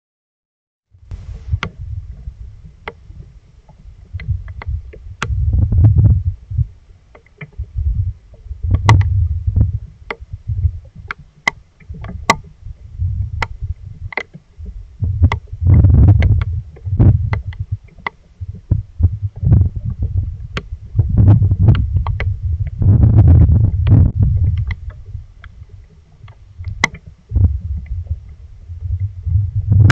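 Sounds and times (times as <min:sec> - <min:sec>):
low buffeting rumble: 0:01.0 - 0:29.9
raindrops tapping on camera housing: 0:08.6 - 0:10.3, 0:13.3 - 0:28.2.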